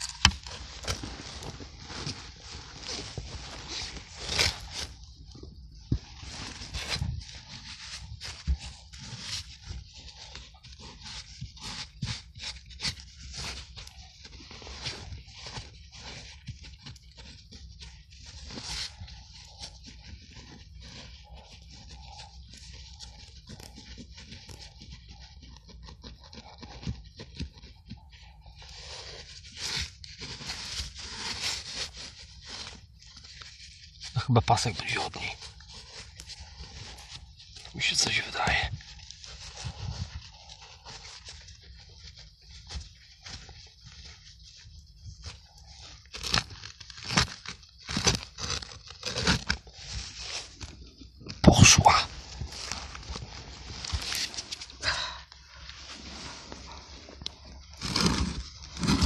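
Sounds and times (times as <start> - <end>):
earth and roots tearing: 0.0 - 59.0
rough rubbing: 28.1 - 50.8, 51.4 - 59.0
hand scraping soil off metal box: 55.4 - 59.0.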